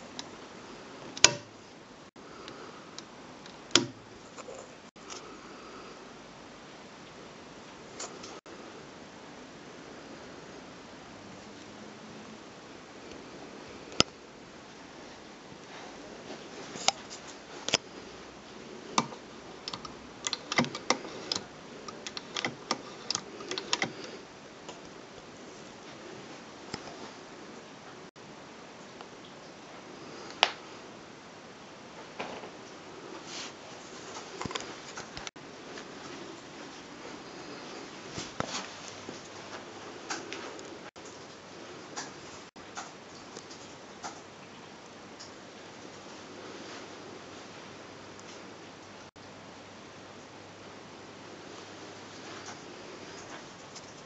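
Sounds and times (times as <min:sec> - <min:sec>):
lamp switch clicking: 0:01.2 - 0:01.5.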